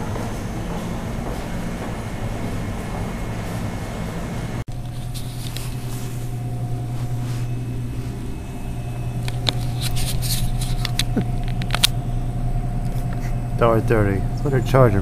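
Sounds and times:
vending machine humming: 0.0 - 15.0
faint high steady tone: 6.8 - 10.2.

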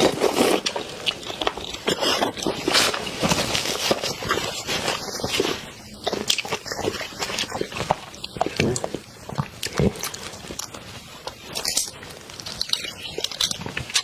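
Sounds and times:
close wet sucking and chewing: 0.0 - 14.0
paper tissue rustling: 2.0 - 6.0.

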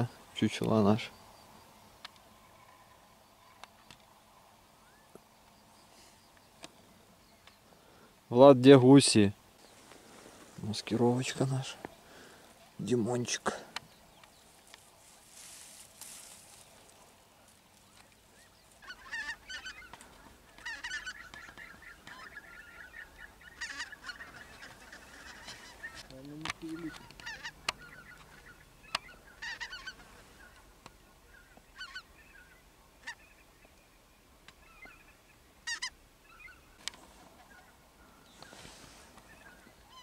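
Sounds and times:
geese honking: 18.7 - 33.4, 34.6 - 40.0.

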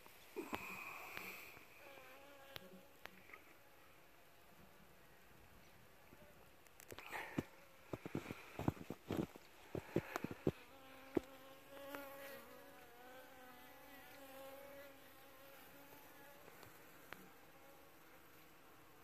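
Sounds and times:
honeybees buzzing: 7.4 - 19.0.

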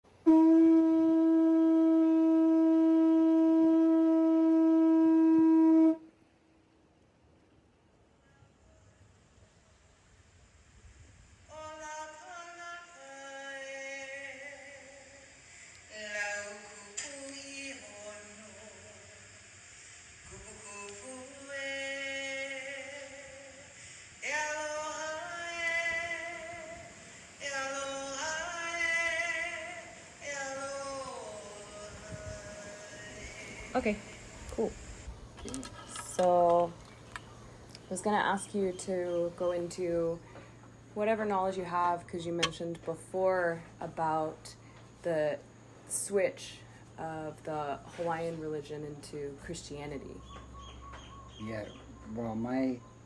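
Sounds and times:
conch shell trumpet note: 0.2 - 6.2
person singing long notes: 20.3 - 34.7.

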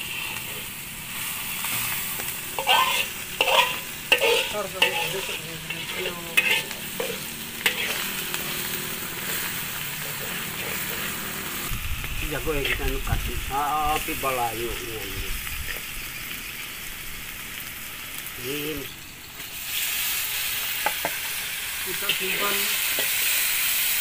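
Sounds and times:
metal spatula scraping wok: 0.0 - 11.8, 12.4 - 14.3, 19.4 - 24.0
food sizzling in oil: 0.0 - 24.0.

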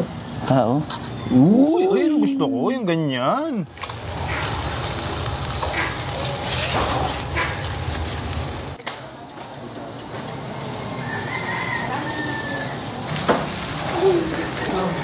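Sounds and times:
steaks sizzling on a grill: 3.7 - 15.0.

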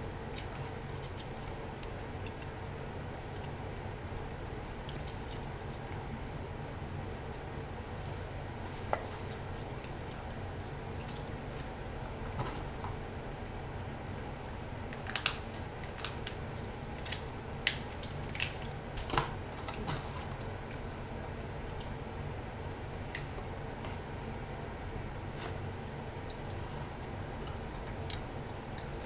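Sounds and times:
steady low hum: 0.0 - 29.0
shears cracking crab shells: 15.0 - 20.5.

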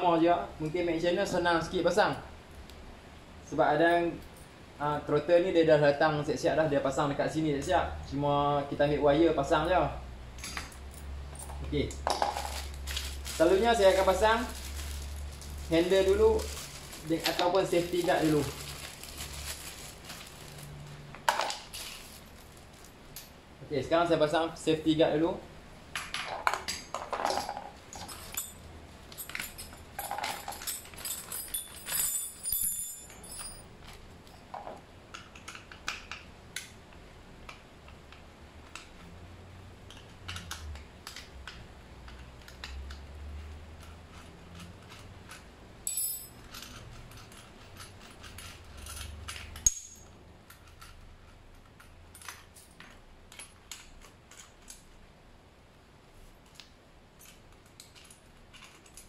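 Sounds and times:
knocks and handling noise: 10.4 - 23.4, 25.9 - 39.2
metal hardware clinking and rattling: 10.4 - 23.4, 26.0 - 35.8, 44.8 - 54.9.

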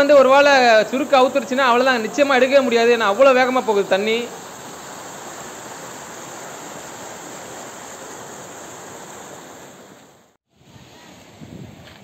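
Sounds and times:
water rushing through channel: 0.0 - 10.4.

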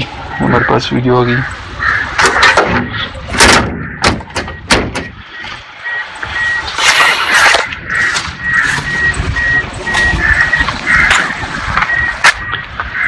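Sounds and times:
wind buffeting microphone: 7.6 - 13.0.

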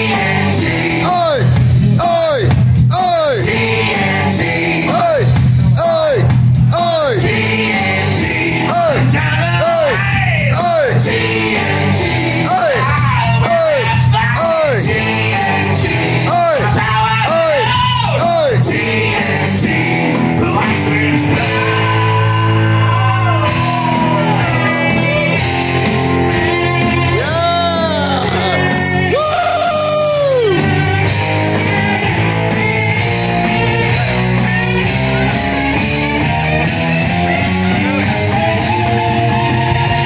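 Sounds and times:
man singing into a microphone: 0.0 - 24.4, 27.1 - 30.6
hard rock backing track: 0.0 - 40.0.

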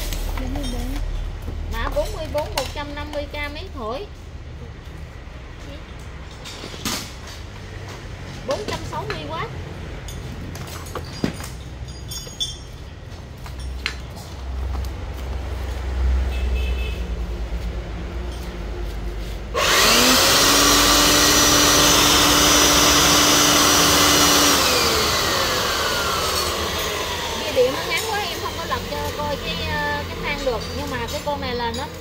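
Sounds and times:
electric blower motor whine: 19.5 - 30.2.

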